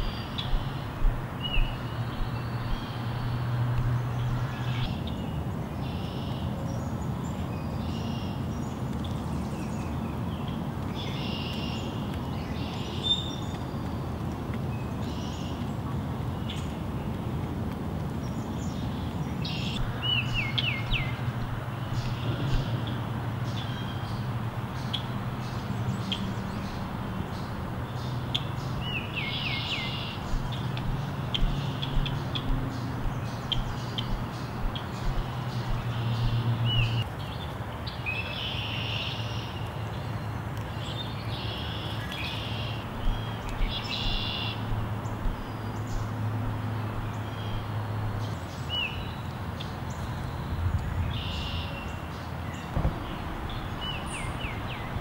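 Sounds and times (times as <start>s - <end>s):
low background rumble: 0.0s - 4.9s, 19.7s - 37.1s, 50.2s - 55.0s
chickadees chirping: 19.5s - 37.0s, 42.3s - 48.3s.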